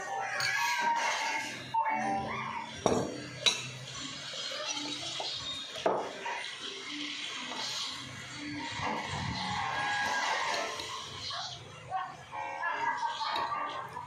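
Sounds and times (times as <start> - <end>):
glass and tableware clinking: 2.8 - 4.0, 5.8 - 6.1.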